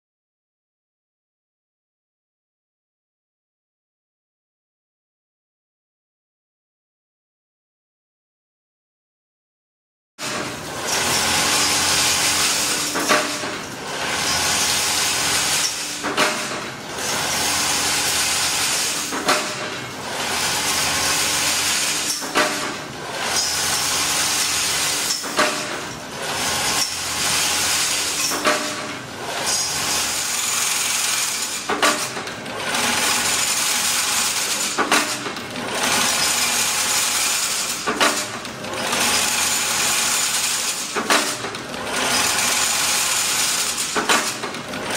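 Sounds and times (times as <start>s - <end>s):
sharp metallic clanks: 10.2s - 14.9s, 15.6s - 16.8s, 18.9s - 20.0s, 21.9s - 23.8s, 24.9s - 27.0s, 28.0s - 30.3s, 31.3s - 32.4s, 43.5s - 44.7s.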